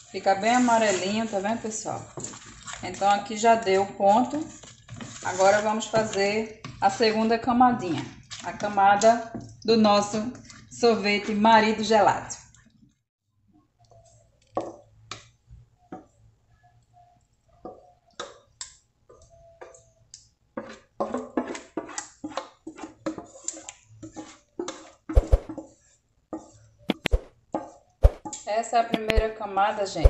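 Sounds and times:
wooden spoon scraping saucepan: 0:00.0 - 0:12.3, 0:19.1 - 0:29.2.

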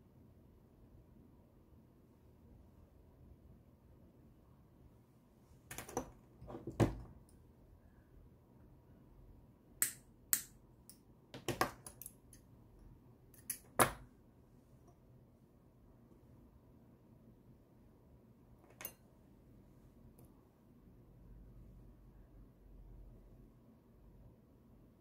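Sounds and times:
metallic clicks and snaps of pliers: 0:09.8 - 0:11.0, 0:11.6 - 0:12.4, 0:13.3 - 0:13.9.

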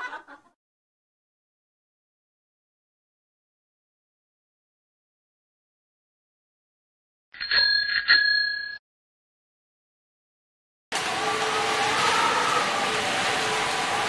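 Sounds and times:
bicycle bell ringing: 0:07.4 - 0:08.8.

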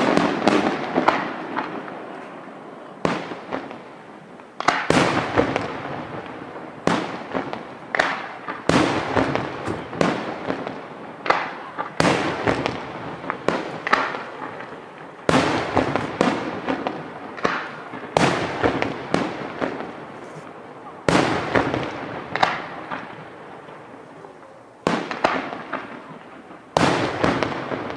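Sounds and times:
firework shells bursting: 0:04.4 - 0:23.8.

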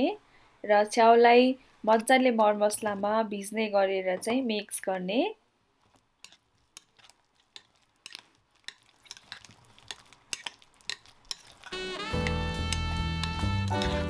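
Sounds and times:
spoon clicking and scraping bowl: 0:06.2 - 0:14.0
music: 0:11.8 - 0:14.0.

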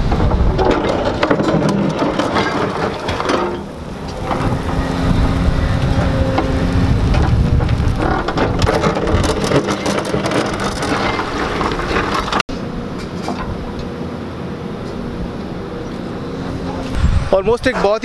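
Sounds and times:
stones and gravel clattering: 0:00.0 - 0:12.5
excavator diesel engine running: 0:00.0 - 0:18.0.

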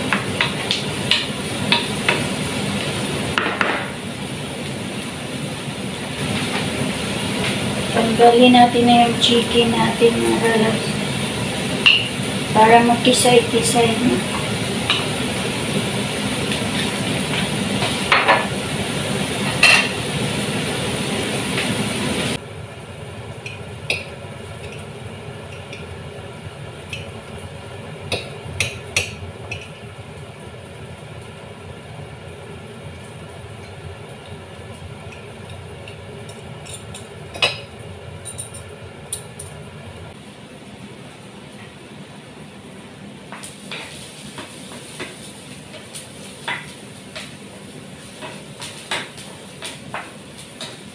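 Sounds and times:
utensils clinking against pot: 0:28.1 - 0:29.8, 0:34.7 - 0:39.6.

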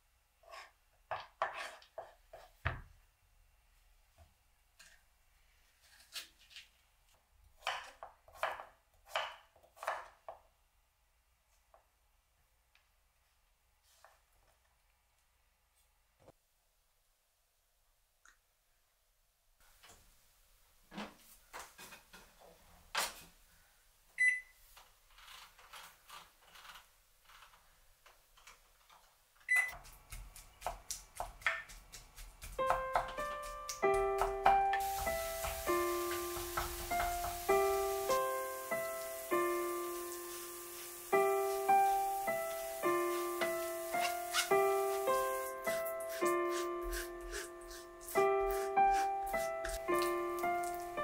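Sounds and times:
knife chopping on wooden board: 0:29.8 - 0:37.5.

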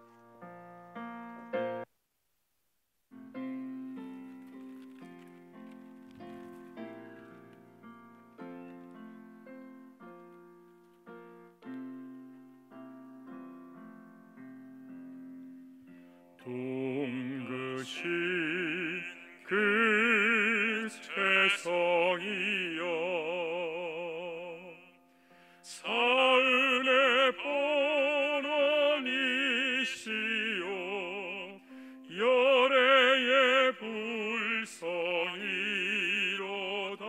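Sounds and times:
piano: 0:00.0 - 0:01.9, 0:03.1 - 0:37.0
solo voice singing with vibrato: 0:16.4 - 0:24.9, 0:25.7 - 0:37.0.

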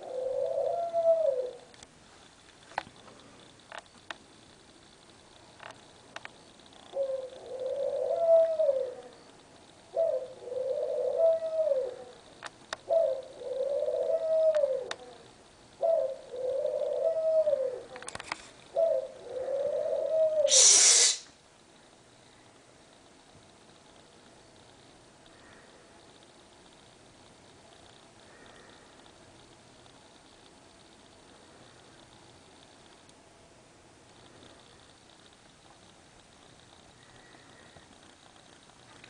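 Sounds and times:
pigeon cooing: 0:00.0 - 0:01.7, 0:06.9 - 0:09.2, 0:09.9 - 0:12.2, 0:12.8 - 0:21.3.

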